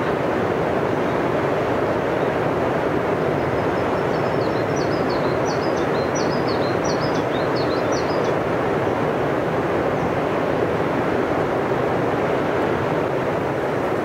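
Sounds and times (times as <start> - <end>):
small bird chirping: 4.0 - 8.3
river rushing over rocks: 4.9 - 14.0.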